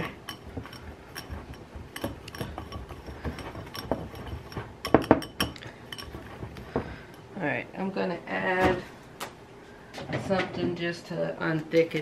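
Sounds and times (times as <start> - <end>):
whisk clinking against glass bowl: 0.0 - 7.2.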